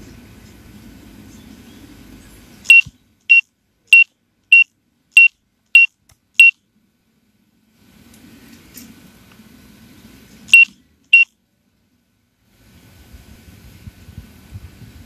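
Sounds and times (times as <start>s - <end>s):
high electronic beeps: 2.7s - 6.6s, 10.5s - 11.3s.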